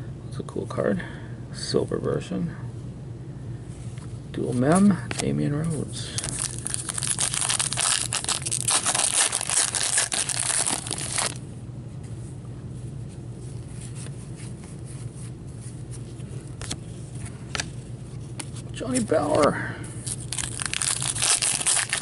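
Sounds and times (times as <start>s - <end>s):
steady low hum: 0.0s - 22.0s
cards being handled: 4.0s - 11.4s, 13.6s - 22.0s
wrapper tearing and crinkling: 6.2s - 11.4s, 20.0s - 22.0s.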